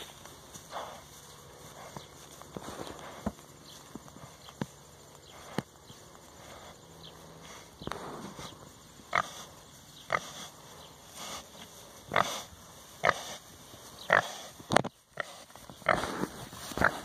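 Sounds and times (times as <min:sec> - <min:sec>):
pig grunting: 0:06.3 - 0:17.0.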